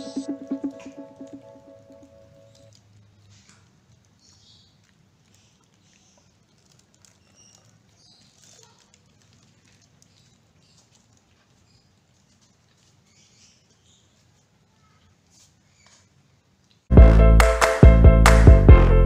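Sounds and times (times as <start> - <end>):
kittens chewing and smacking: 2.5 - 15.5.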